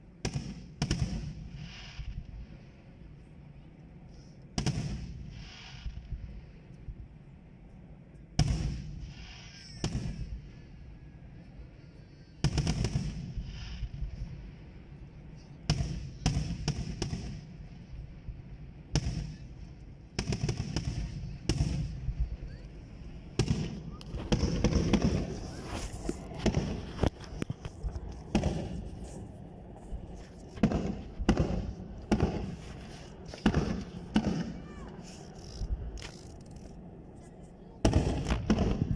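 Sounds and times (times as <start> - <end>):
firework crackling: 0.0 - 3.6, 4.5 - 7.2, 8.4 - 38.9
firework shells booming: 12.4 - 14.2, 18.7 - 34.8, 37.8 - 38.9.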